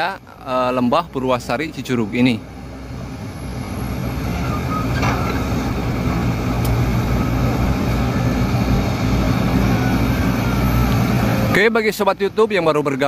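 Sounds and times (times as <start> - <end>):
diesel machinery engines rumbling: 0.0 - 13.0.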